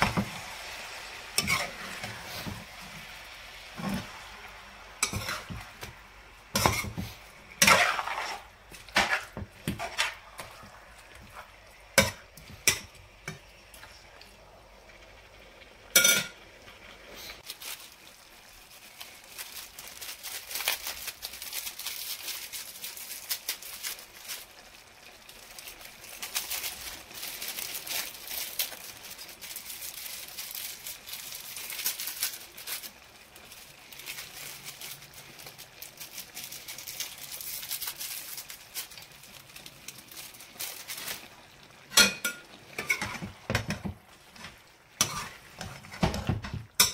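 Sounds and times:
spice sachets crackling and rustling: 17.2s - 41.8s.

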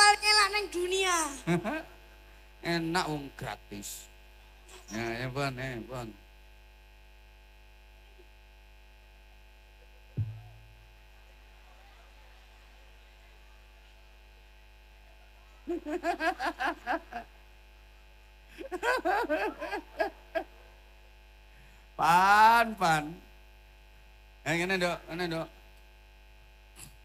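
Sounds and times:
mains hum from sound system: 0.0s - 27.0s
dull thump: 10.2s - 10.8s
laughter through microphone: 15.6s - 17.3s, 18.6s - 20.5s.

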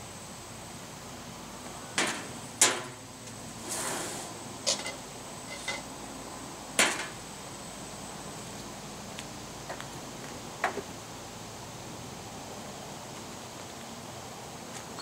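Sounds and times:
short hiss: 3.6s - 4.4s.

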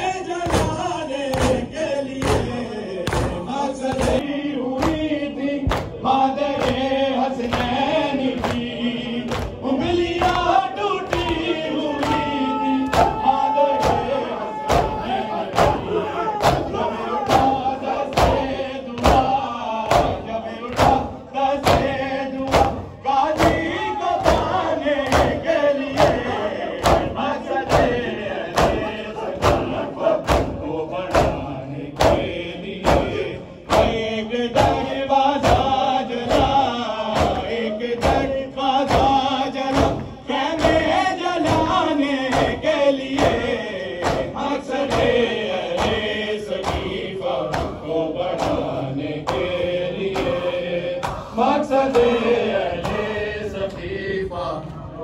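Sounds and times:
men chanting a lament: 0.0s - 55.0s
rhythmic chest slapping: 0.0s - 55.0s.

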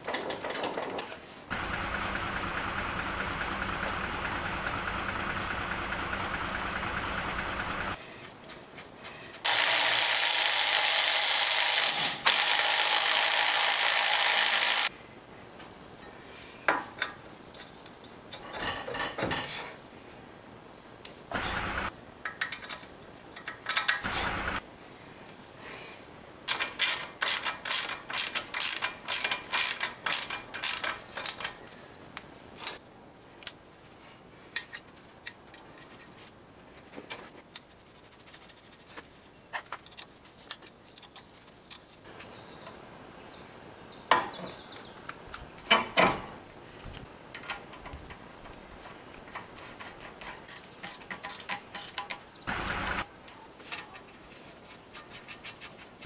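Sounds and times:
ratchet wrench clicking: 26.5s - 31.5s.

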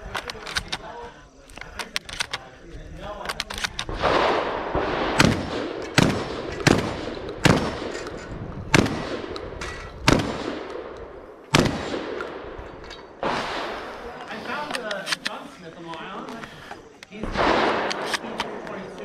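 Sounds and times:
shotgun shots echoing: 3.4s - 15.2s, 17.2s - 19.0s.

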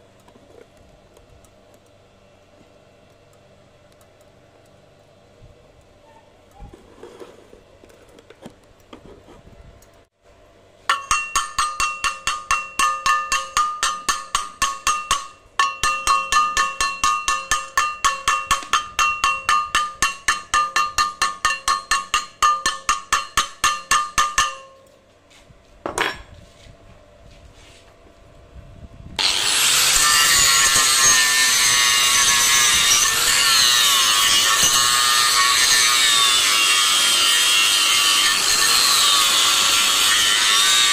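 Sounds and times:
steel plate ringing from strokes: 10.9s - 24.9s, 29.7s - 40.9s
angle grinder grinding metal: 29.2s - 40.9s.

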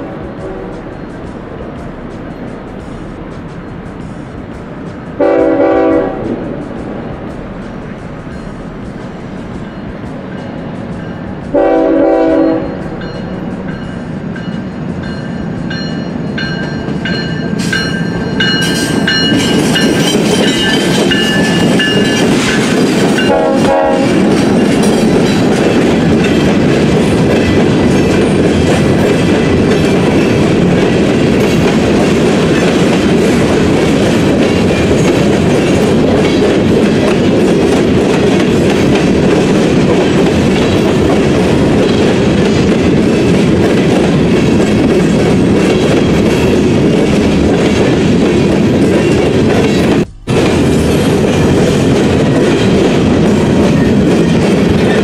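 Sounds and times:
locomotive air horn: 0.0s - 0.9s, 5.2s - 6.6s, 11.5s - 12.9s, 23.2s - 24.3s
freight cars rolling on rails: 0.0s - 55.0s.

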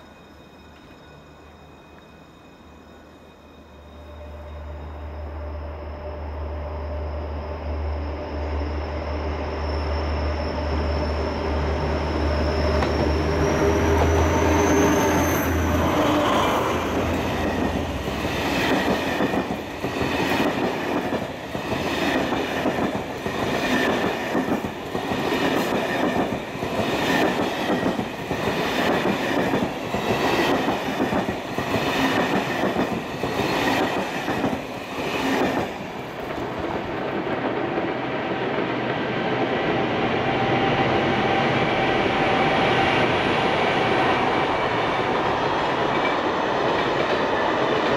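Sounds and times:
locomotive engine hum and whine: 3.7s - 20.2s.

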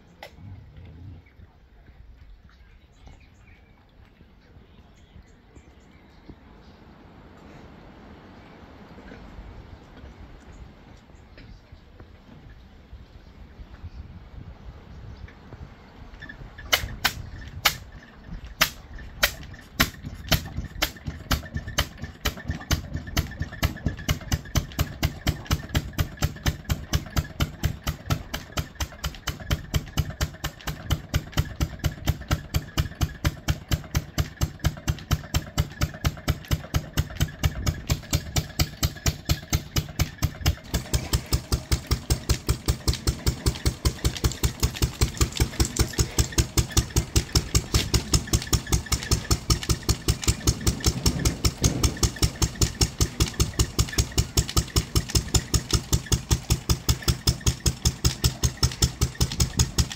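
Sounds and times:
stationary engine starting: 19.0s - 59.9s.

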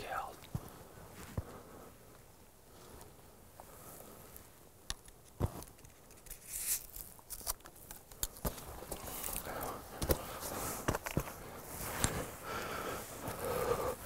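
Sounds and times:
rustling in dry grass: 5.4s - 13.7s.

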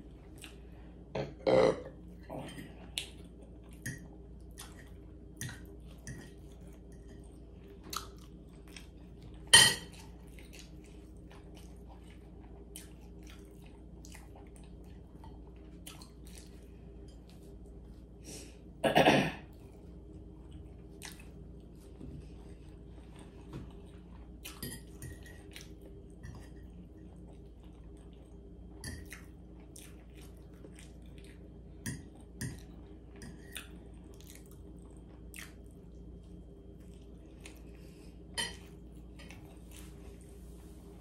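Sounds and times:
person chewing with mouth smacks: 7.8s - 9.4s, 10.0s - 16.7s, 20.5s - 21.9s, 29.0s - 31.5s.

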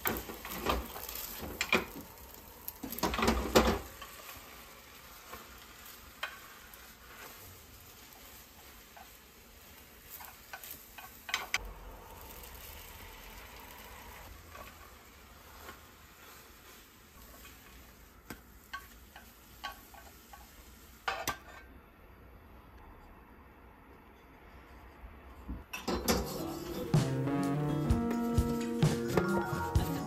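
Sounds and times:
egg sizzling in a pan: 0.0s - 21.5s
chopsticks scraping and tapping pan: 5.2s - 7.4s, 10.1s - 11.6s, 15.5s - 21.6s.

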